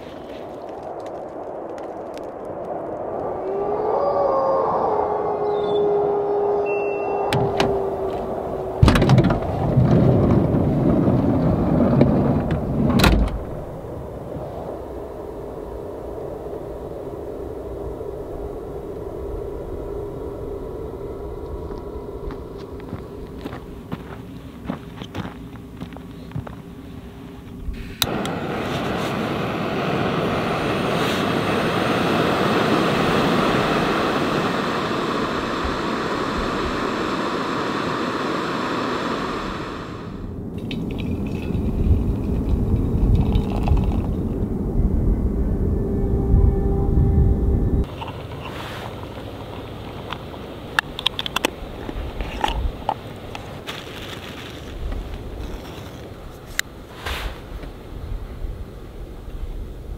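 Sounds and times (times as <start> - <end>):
wind buffeting microphone: 0.0 - 26.9, 27.5 - 59.9
gas burner hissing: 27.7 - 40.4.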